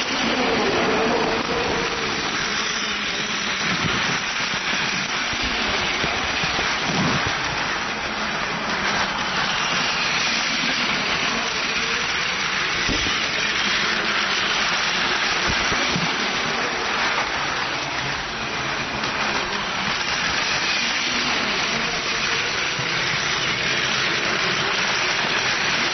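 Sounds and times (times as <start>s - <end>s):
toy train motor whirring: 0.0s - 25.9s
wheels rattling on track: 0.0s - 25.9s.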